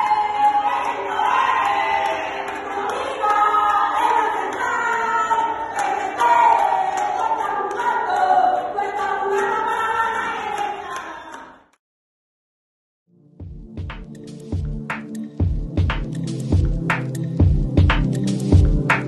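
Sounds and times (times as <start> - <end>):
group of voices singing: 0.0 - 11.7.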